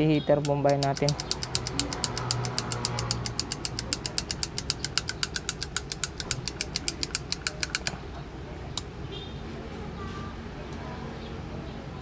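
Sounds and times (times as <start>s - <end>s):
rapid sharp clicks: 0.4s - 8.0s.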